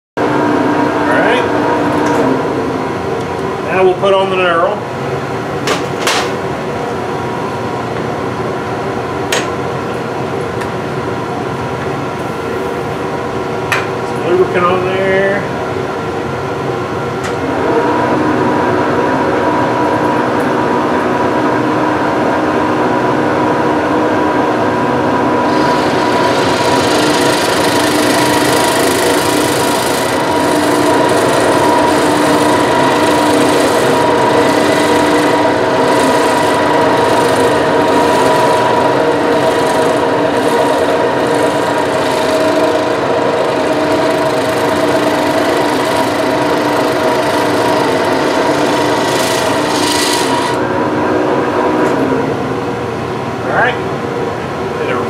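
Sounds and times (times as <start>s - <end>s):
metal lathe whining: 25.2s - 52.3s.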